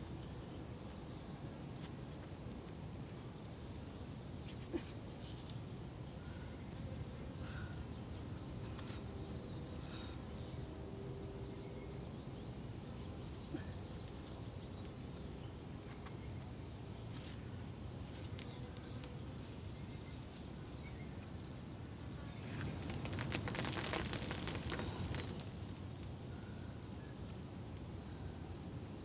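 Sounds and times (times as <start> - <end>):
crumbly rock raining down: 21.7 - 26.0.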